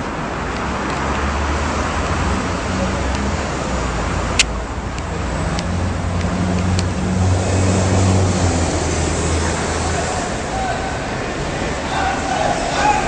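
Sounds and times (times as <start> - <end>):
road traffic noise: 0.0 - 13.0
sharp click: 4.4 - 6.9.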